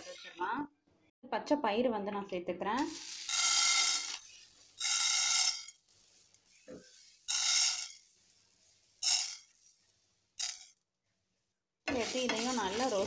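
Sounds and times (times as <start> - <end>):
grains poured into a pan: 2.9 - 10.6, 11.9 - 13.0.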